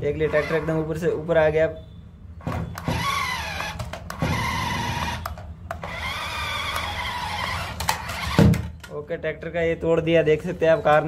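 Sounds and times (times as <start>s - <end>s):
toy car motors whining: 0.2s - 1.0s, 2.8s - 8.6s.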